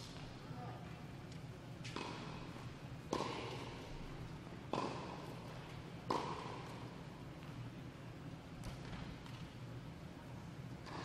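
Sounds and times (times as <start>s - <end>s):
tennis racket hitting ball: 1.8s - 2.4s, 3.1s - 3.8s, 4.7s - 6.9s.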